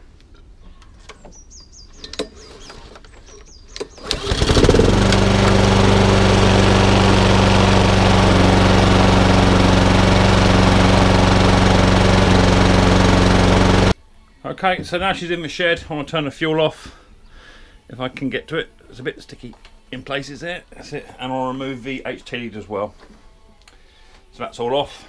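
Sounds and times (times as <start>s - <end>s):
lawnmower engine starting and running: 3.8s - 14.0s.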